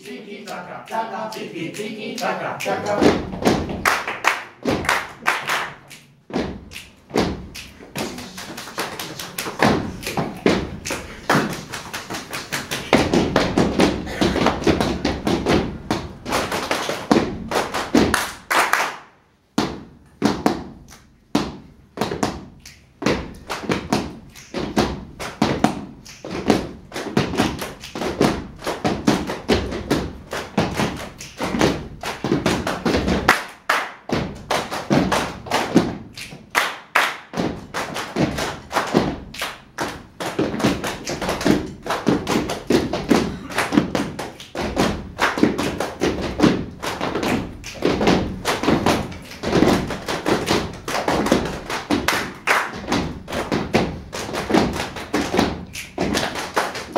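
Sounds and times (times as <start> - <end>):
rhythmic hand claps and thumps: 0.0 - 56.9.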